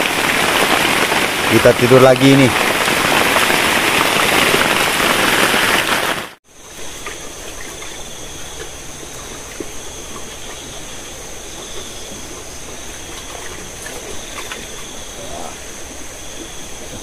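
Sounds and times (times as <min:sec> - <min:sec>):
heavy rain on a roof: 0:00.0 - 0:06.4
flowing river water: 0:00.0 - 0:17.0.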